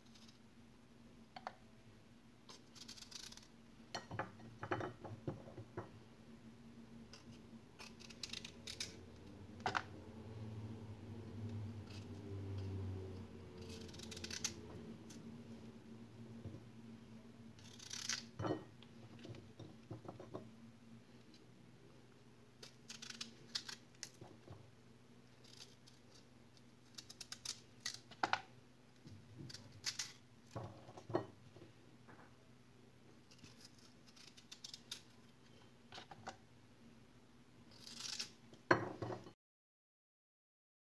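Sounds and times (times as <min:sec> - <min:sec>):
faint steady hum: 0:00.0 - 0:39.3
knife cutting fruit: 0:11.5 - 0:15.3.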